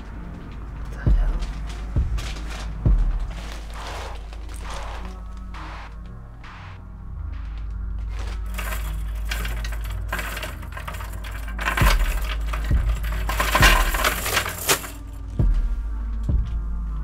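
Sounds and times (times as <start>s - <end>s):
steel chain clinking: 8.2s - 15.4s.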